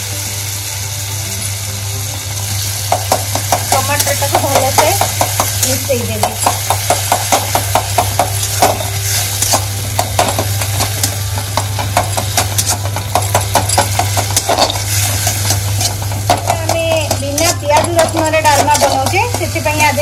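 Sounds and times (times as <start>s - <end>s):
faint sizzle: 0.0s - 20.0s
steel spatula scraping a pan: 12.4s - 16.1s.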